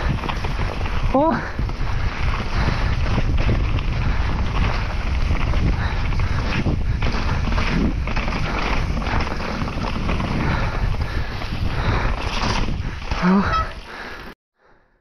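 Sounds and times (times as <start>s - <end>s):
wind buffeting microphone: 0.0s - 14.2s
bike tyre rumble on trail: 0.0s - 14.4s.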